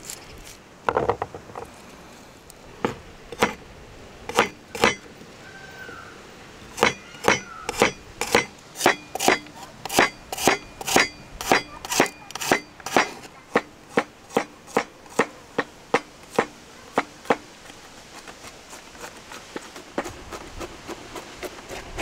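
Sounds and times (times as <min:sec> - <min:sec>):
knife chopping on wooden board: 0:04.3 - 0:05.0.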